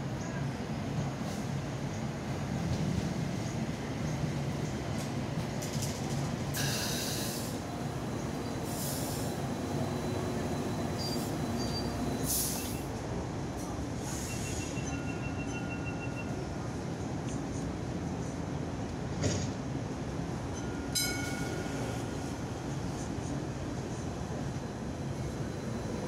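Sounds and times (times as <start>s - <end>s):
light rail train rumbling: 0.0s - 26.0s
short sharp hisses: 6.6s - 7.6s.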